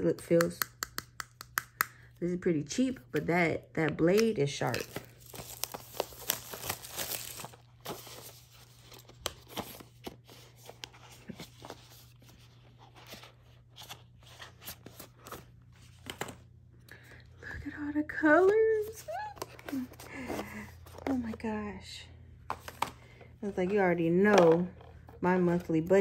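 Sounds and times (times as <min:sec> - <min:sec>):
packaging tearing and crinkling: 0:04.6 - 0:10.0.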